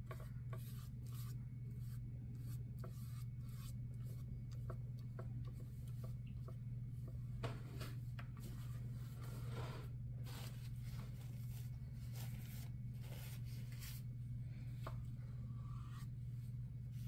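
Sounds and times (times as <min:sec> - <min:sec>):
paintbrush swishing and scraping: 0:00.0 - 0:04.7, 0:07.6 - 0:14.2
low steady hum: 0:00.0 - 0:17.0.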